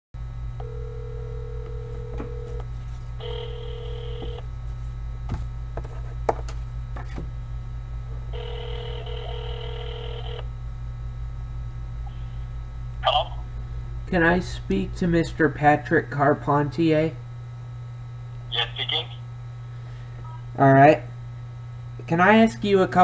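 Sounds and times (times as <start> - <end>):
steady low hum: 0.2 - 23.0
phone ringback tone: 0.6 - 2.6, 3.2 - 4.4, 8.3 - 10.4.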